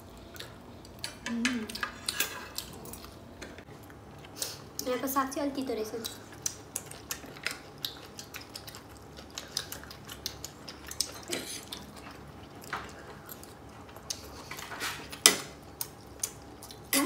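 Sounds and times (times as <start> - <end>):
chewing: 0.2 - 3.2, 6.0 - 17.0
cutlery scraping a plate: 1.8 - 2.6.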